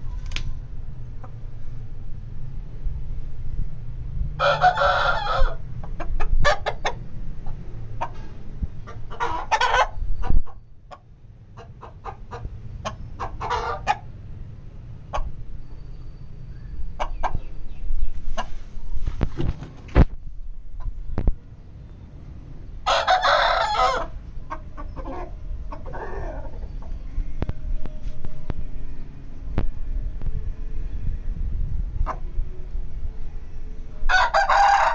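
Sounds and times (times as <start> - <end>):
low rumble: 0.0 - 4.4, 24.1 - 34.4
rooster crowing: 4.4 - 5.6, 22.8 - 24.2, 34.1 - 34.9
rooster clucking: 4.4 - 14.2, 15.0 - 15.9, 16.9 - 18.9, 22.8 - 28.0, 32.0 - 32.4, 34.1 - 34.9.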